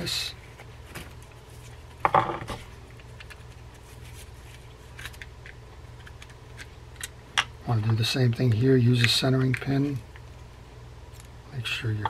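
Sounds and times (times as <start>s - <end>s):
steady low hum: 0.0s - 12.0s
light clicks and taps of metal parts: 7.8s - 10.3s.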